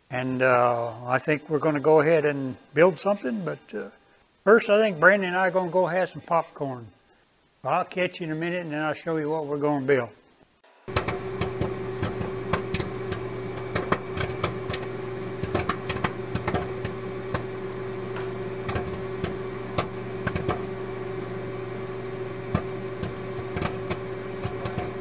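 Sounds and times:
steady hum: 0.0s - 25.0s
popcorn popping: 10.9s - 25.0s.

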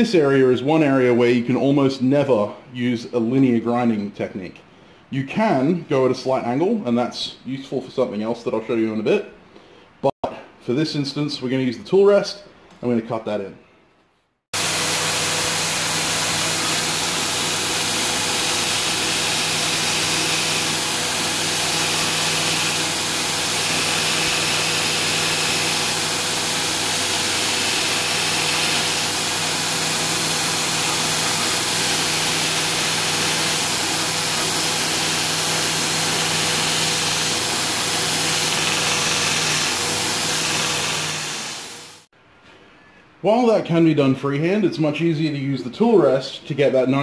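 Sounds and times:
motor and belt hum: 14.6s - 42.0s
belt grinder grinding steel: 14.6s - 42.1s.

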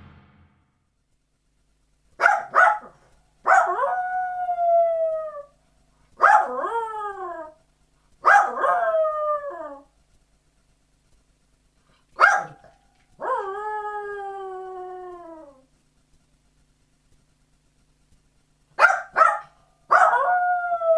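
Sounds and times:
dog yipping: 2.2s - 2.9s, 8.2s - 8.9s, 12.2s - 12.7s, 18.8s - 20.3s
dog howling: 3.5s - 5.6s, 8.3s - 9.9s, 13.2s - 15.7s, 19.9s - 20.9s.

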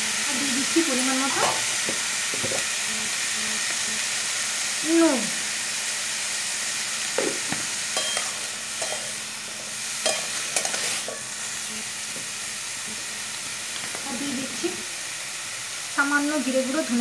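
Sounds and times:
vegetables sizzling in hot oil: 0.0s - 17.0s
metal spatula scraping a pan: 8.0s - 9.2s, 10.0s - 11.8s.

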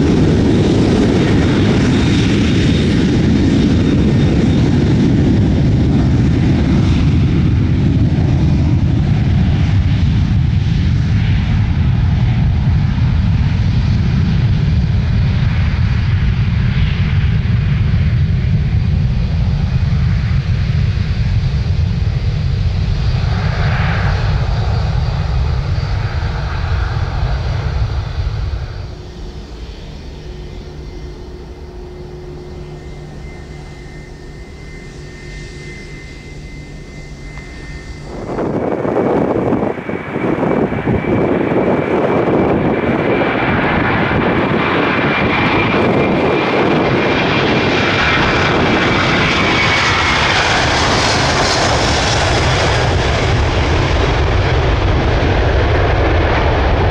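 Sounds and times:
jet airliner taking off: 0.0s - 56.9s
distant jet hum: 21.1s - 56.9s.

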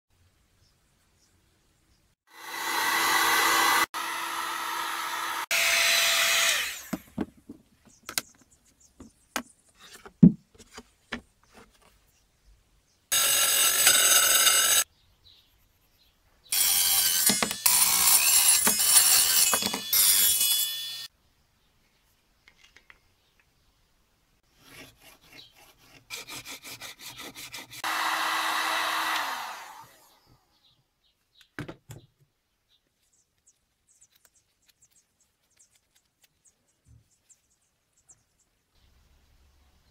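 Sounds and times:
heat gun blowing: 2.3s - 7.0s, 27.8s - 30.2s
bench saw cutting plastic: 2.3s - 7.1s, 13.1s - 14.8s, 16.5s - 21.1s, 24.6s - 30.1s.

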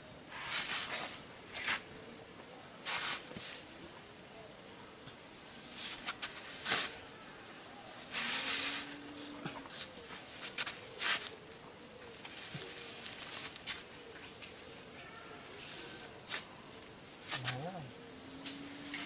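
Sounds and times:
fingertip scraping sand: 2.8s - 3.6s, 7.9s - 9.2s.

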